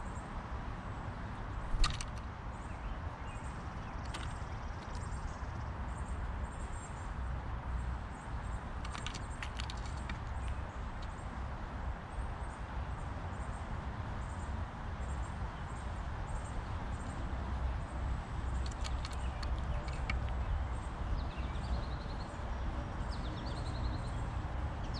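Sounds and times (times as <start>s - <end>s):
sharp clicks: 1.8s - 2.3s, 3.9s - 5.2s, 8.8s - 11.2s, 18.5s - 20.5s.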